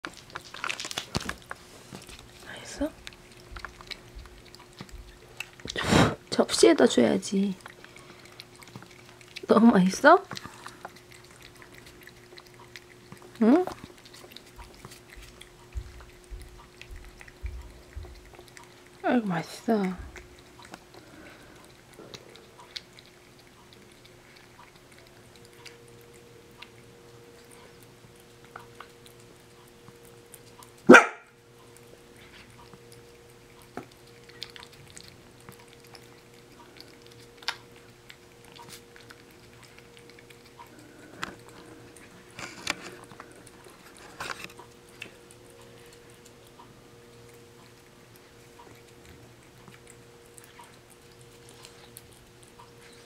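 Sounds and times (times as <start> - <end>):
cat licking: 0.0 - 53.0
faint steady hum: 0.0 - 53.0
dog bark: 30.9 - 31.3.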